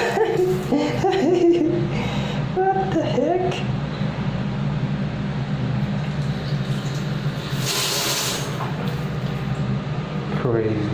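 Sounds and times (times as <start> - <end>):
bidet sprayer hissing water: 6.2 - 9.5.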